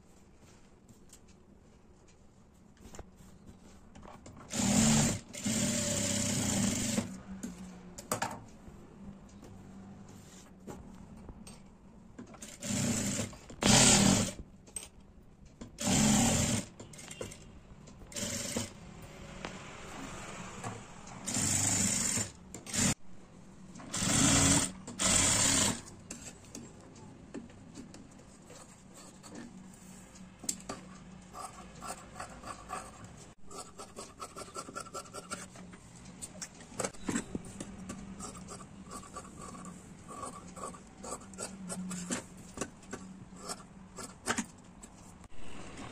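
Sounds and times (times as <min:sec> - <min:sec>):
sewing machine stitching: 0:04.4 - 0:07.2, 0:12.3 - 0:14.4, 0:15.8 - 0:18.8, 0:21.2 - 0:23.0, 0:23.8 - 0:26.4.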